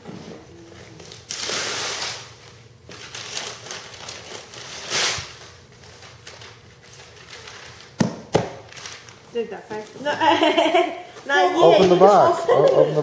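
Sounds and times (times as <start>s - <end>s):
sharp knocks on box: 8.0s - 8.6s.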